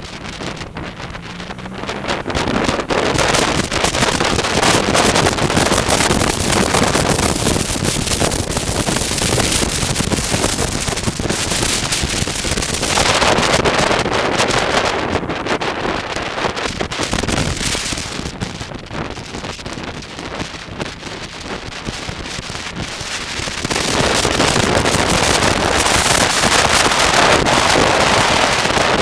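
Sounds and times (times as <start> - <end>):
motorcycle engine running: 0.0 - 29.0
wind buffeting microphone: 0.0 - 29.0.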